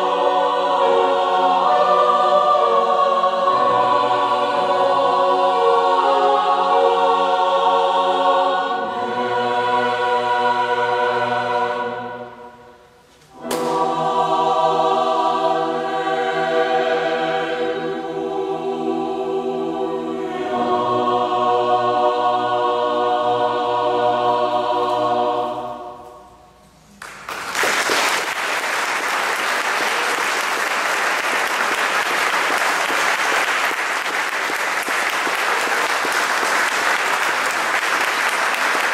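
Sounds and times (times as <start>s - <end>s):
mixed chorus holding a chord: 0.0s - 26.2s
audience applause: 27.0s - 38.9s.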